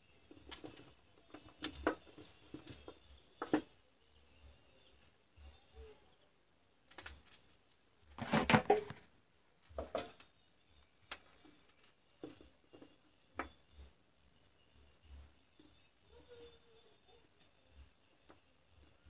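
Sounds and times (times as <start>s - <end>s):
small clicks and knocks: 0.2s - 3.7s, 6.8s - 15.8s
clattering rustle: 6.9s - 9.1s.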